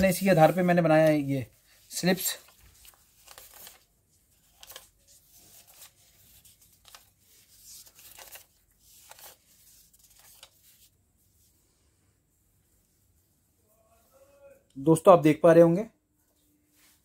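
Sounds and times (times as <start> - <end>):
paper rustling: 0.0 - 11.0.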